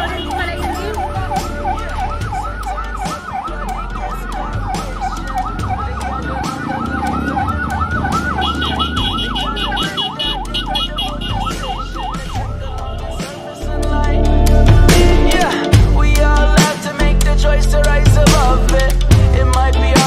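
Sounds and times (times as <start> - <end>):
ambulance siren yelping: 0.0 - 13.6.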